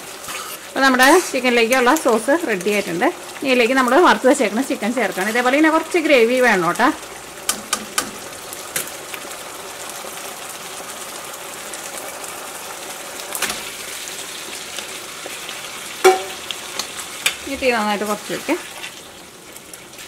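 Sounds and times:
sauce boiling with bubbling hiss: 0.0 - 20.0
ladle clinking: 16.0 - 16.4.

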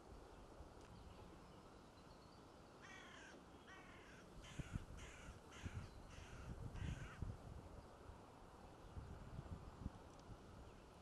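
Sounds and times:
low wind rumble: 0.0 - 11.0
crow cawing: 2.8 - 7.2.

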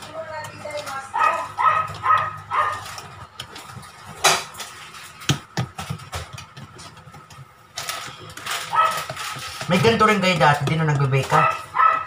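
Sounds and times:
dog barking: 1.1 - 3.0, 8.7 - 9.1, 11.3 - 12.0.

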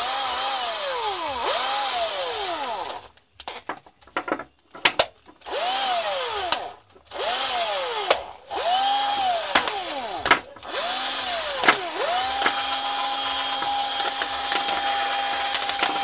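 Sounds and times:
clicks and knocks: 3.4 - 5.4, 9.6 - 10.7, 11.6 - 16.0
cordless drill motor whining: 5.4 - 16.0.

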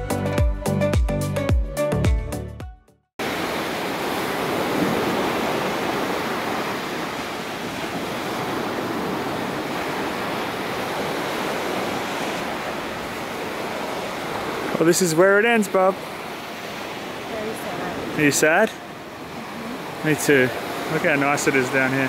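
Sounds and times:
music: 0.0 - 3.1
waves breaking on beach: 3.2 - 22.0.

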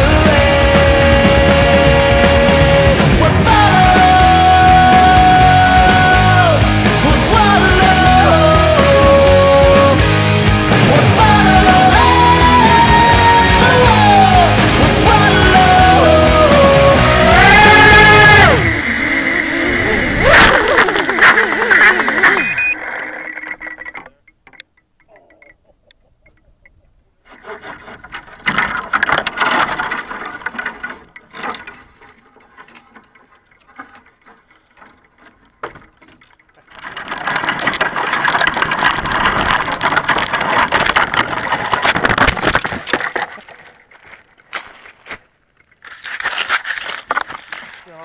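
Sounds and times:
footsteps through dry grass: 43.4 - 48.0.

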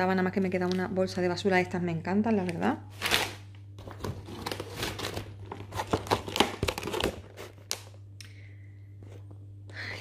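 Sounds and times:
plastic container crinkling: 3.0 - 8.0.

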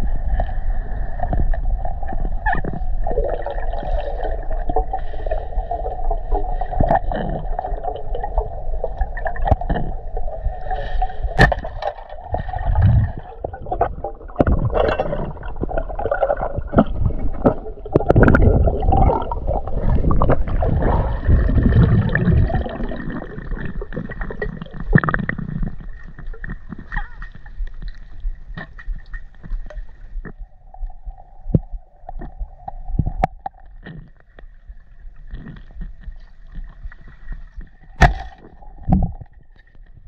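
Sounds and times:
water sloshing and gurgling: 0.0 - 40.0
knocks and splashes: 11.2 - 25.3, 35.8 - 40.0.

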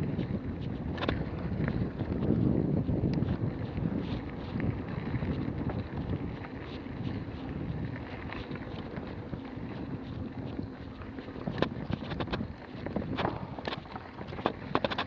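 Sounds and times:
bike tyres rumbling on dirt: 0.0 - 15.0
wind buffeting microphone: 0.0 - 15.0
light clicks and rattles: 0.2 - 2.4, 8.0 - 15.0.

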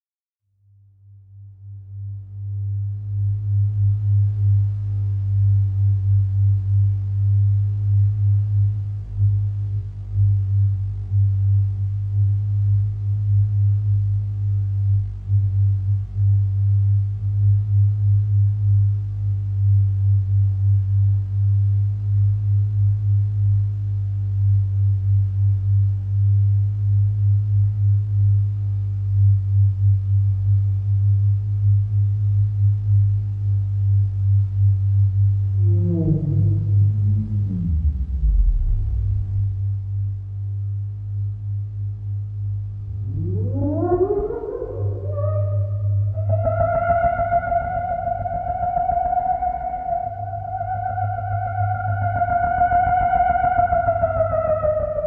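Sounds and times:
deep pulsing electronic hum: 0.5 - 55.0
low synthesised drone: 0.9 - 55.0.

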